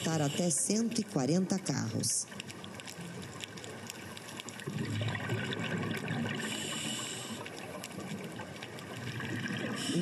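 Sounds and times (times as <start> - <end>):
faint steady crackle: 0.0 - 10.0
underwater bubbling and trickling: 0.0 - 10.0.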